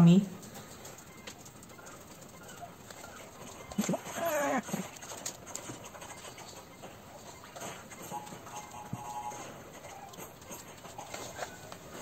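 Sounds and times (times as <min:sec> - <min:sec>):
animal's wavering cry: 0:01.1 - 0:05.3.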